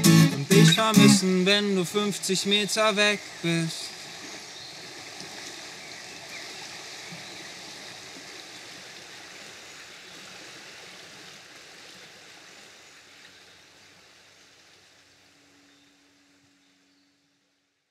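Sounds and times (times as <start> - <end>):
river rushing over stones: 0.0 - 12.8.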